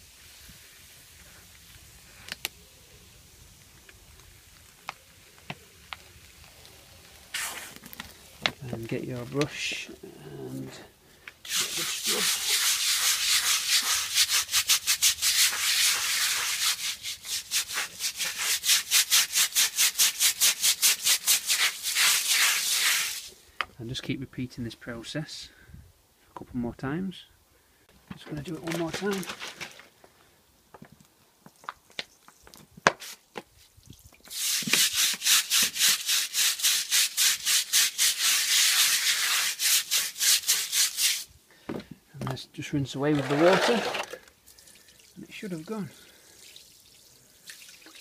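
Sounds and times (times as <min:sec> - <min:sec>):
brush scrubbing concrete: 0:11.5 - 0:23.3, 0:34.3 - 0:41.3, 0:43.0 - 0:44.2.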